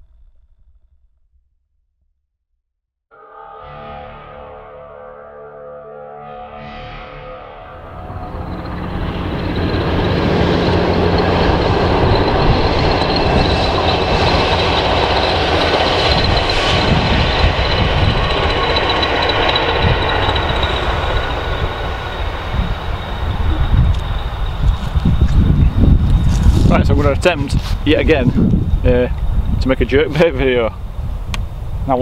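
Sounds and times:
high whine: 0:03.1 - 0:32.0
freight train rumbling: 0:07.7 - 0:32.0.

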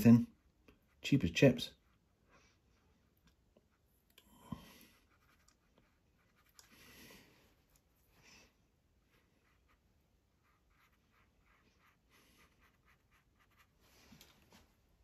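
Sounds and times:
paintbrush strokes on paper: 0:00.0 - 0:15.0.

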